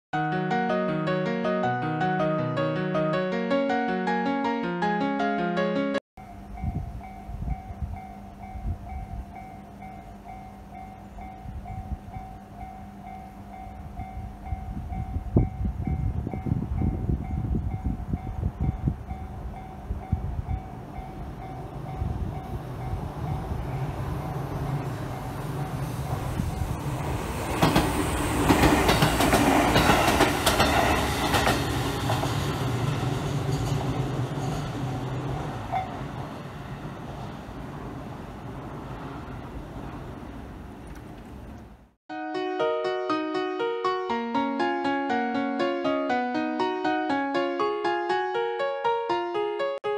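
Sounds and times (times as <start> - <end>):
crossing warning bell ringing: 6.2 - 26.8
train wheels clacking on rails: 22.4 - 36.3.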